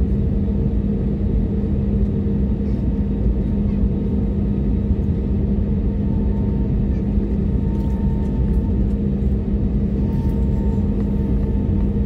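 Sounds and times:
aircraft cabin engine hum: 0.0s - 12.0s.

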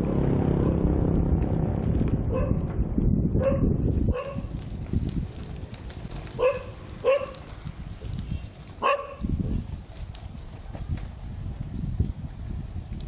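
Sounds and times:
low rumbling noise: 0.0s - 13.0s
dog barking: 2.3s - 2.6s, 3.4s - 4.5s, 6.4s - 7.4s, 8.8s - 9.3s.

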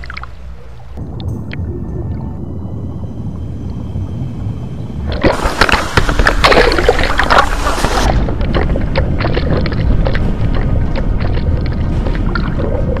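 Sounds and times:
muffled underwater rumble: 0.0s - 13.0s
water splashing around camera: 5.1s - 13.0s.

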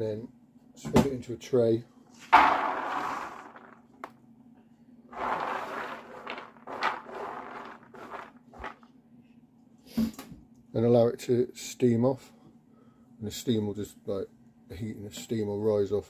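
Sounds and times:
hand sweeping kernels across tray: 2.3s - 3.8s, 5.2s - 8.8s
popcorn kernels poured into tray: 2.3s - 3.9s, 5.2s - 8.8s.

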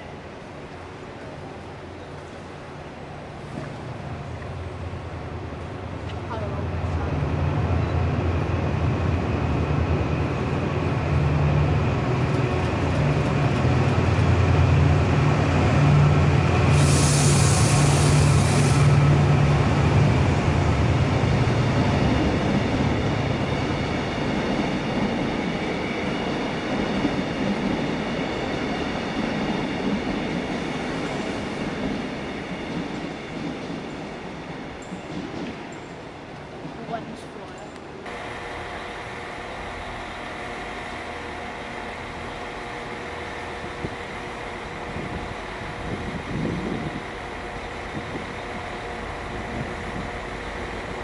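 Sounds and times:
diesel locomotive engine drone: 0.0s - 51.0s
train wheels rumbling on rails: 0.0s - 51.0s
air hiss: 16.7s - 19.0s.

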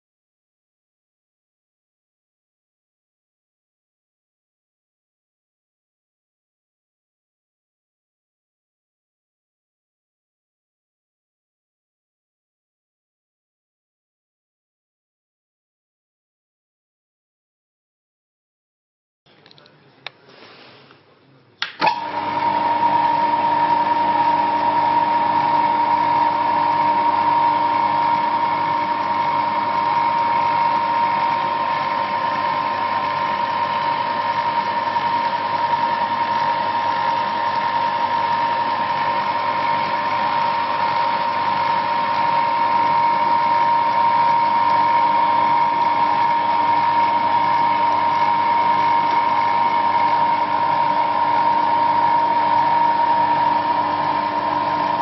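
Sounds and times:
small lathe motor whine: 21.9s - 55.0s.

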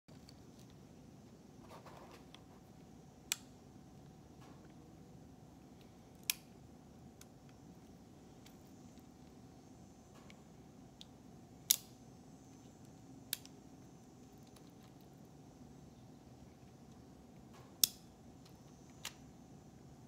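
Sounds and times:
revolver metallic clicks: 11.7s - 12.0s.

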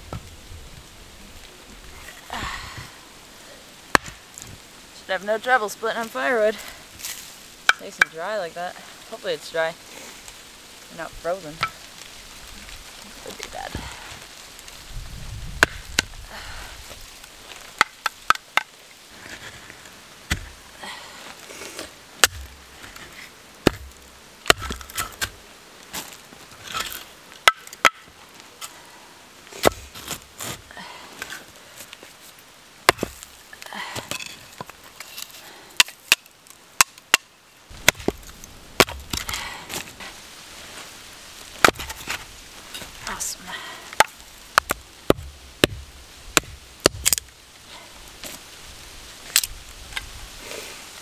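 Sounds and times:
axe chopping firewood: 3.9s - 4.5s, 15.6s - 16.2s, 17.8s - 18.7s, 20.3s - 20.6s, 21.7s - 25.4s, 26.8s - 28.1s, 29.6s - 30.6s, 32.8s - 34.7s, 35.8s - 39.8s, 41.6s - 42.2s, 43.9s - 47.3s.

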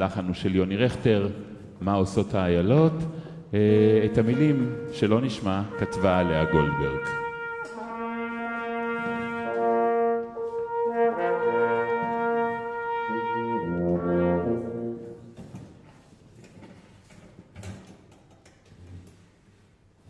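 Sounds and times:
brass ensemble playing chords: 3.6s - 15.4s
low tuba note: 3.7s - 15.4s.

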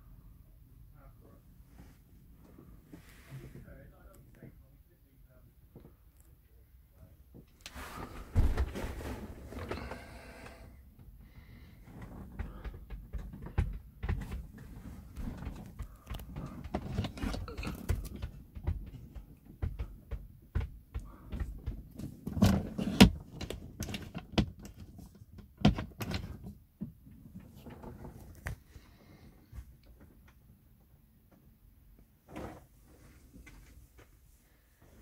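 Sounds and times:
low handling rustle: 7.4s - 10.5s.

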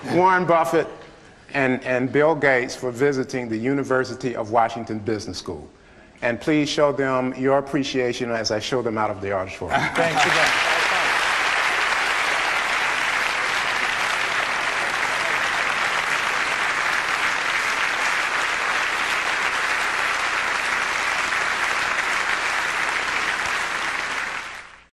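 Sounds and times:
audience applauding: 10.0s - 24.9s.

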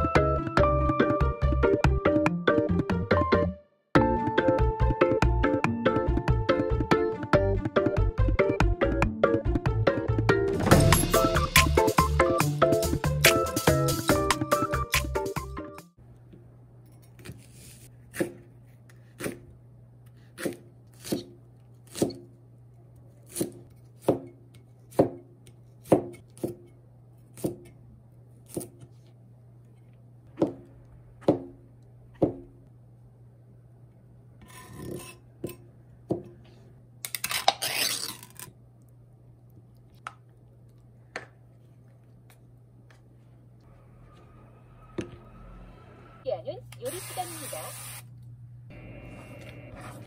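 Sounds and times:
knife chopping on cutting board: 18.1s - 19.5s, 20.3s - 22.2s, 23.3s - 26.7s, 27.3s - 27.7s, 28.4s - 28.9s
knife scraping board: 34.4s - 35.6s.

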